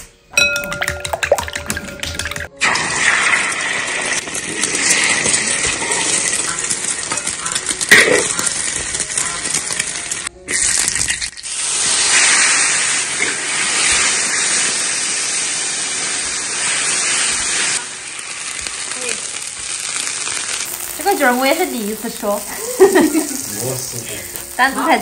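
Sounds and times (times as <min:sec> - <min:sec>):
mushrooms sizzling in hot oil: 0:02.7 - 0:25.0.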